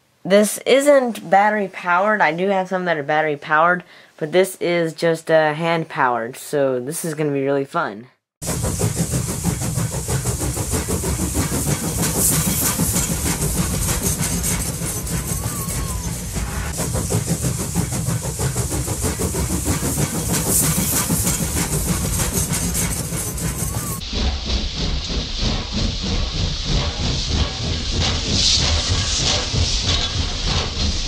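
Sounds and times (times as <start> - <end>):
rhythmic train clatter: 8.4 - 31.0
steam hiss: 8.4 - 31.0.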